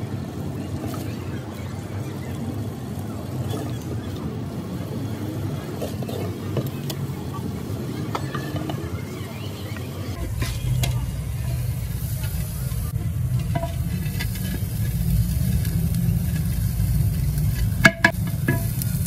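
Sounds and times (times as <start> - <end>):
steady low rumble: 10.1 - 19.0
spoon scraping clay pots: 12.0 - 18.8.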